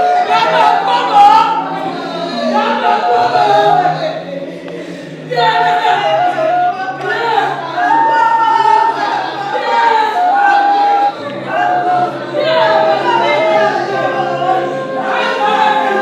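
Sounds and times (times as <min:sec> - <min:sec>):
group of voices singing: 0:00.0 - 0:16.0.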